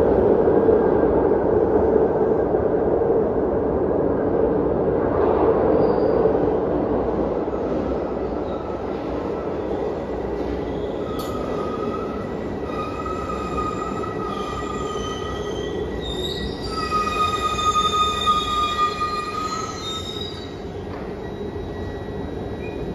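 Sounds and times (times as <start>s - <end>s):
train rumbling: 0.0s - 22.9s
wheels squealing on rails: 5.6s - 22.9s.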